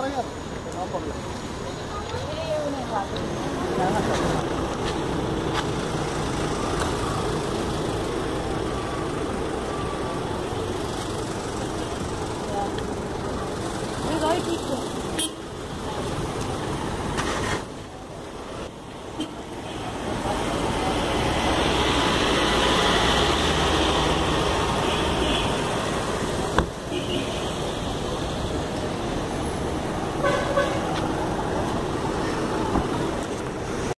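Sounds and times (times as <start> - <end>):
road traffic noise: 0.0 - 34.0
vehicle passing close: 19.9 - 26.6.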